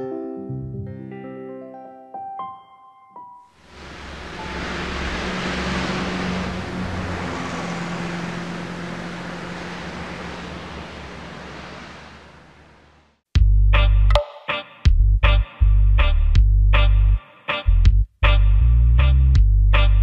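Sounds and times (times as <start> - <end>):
low hum: 3.6 - 13.2
heavy motorway traffic roar: 3.7 - 13.1.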